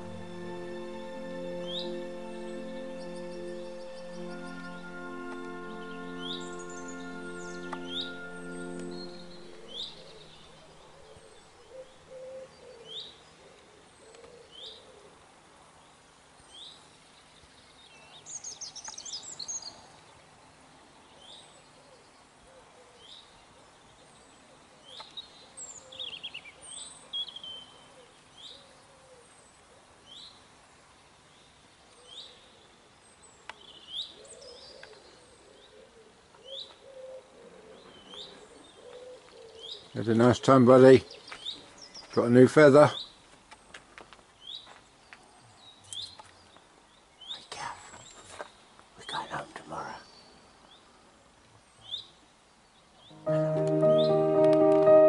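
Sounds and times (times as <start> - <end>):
birdsong bursts: 0.0 - 12.1
bird chirping: 0.0 - 14.9, 51.6 - 55.0.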